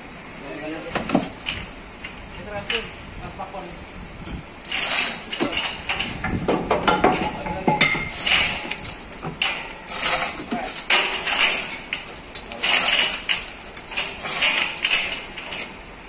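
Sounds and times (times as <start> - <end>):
chain rattling and clinking: 7.8 - 15.8.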